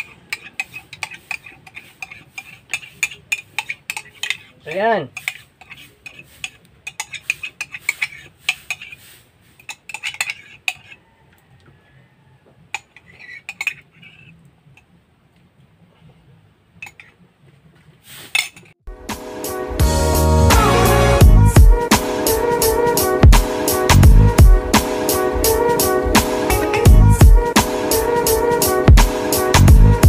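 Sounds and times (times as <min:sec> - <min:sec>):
metal ladle scraping a pan: 0:00.0 - 0:11.0, 0:12.7 - 0:14.9, 0:16.8 - 0:17.2
music: 0:18.9 - 0:30.0.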